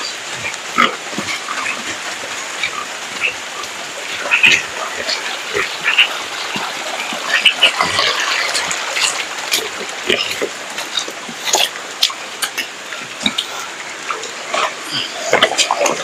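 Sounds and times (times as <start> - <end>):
drips splashing into puddles: 0.0 - 16.0
pig grunting: 0.0 - 16.0
steady rain: 0.0 - 16.0.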